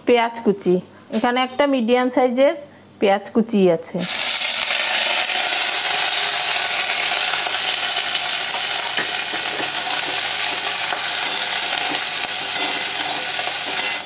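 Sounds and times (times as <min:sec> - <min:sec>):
onions sizzling in oil: 0:04.0 - 0:14.0
spatula scraping a metal pan: 0:11.2 - 0:14.0.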